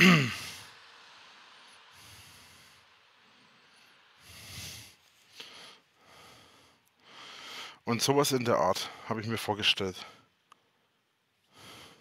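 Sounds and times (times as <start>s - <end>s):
man breathing faintly: 1.9s - 7.9s, 10.0s - 12.0s.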